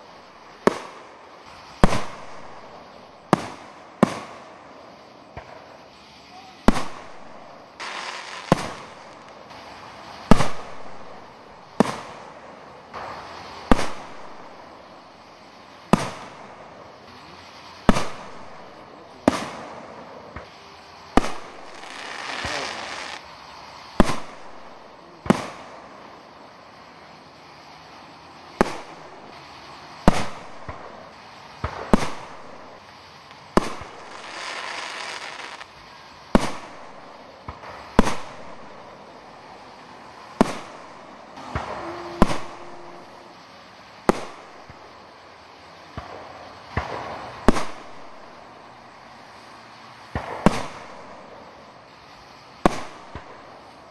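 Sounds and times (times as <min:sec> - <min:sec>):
firework hiss: 0:00.0 - 0:53.9
firework shells bursting: 0:06.6 - 0:14.6, 0:17.8 - 0:23.2, 0:30.0 - 0:35.7, 0:40.2 - 0:43.1.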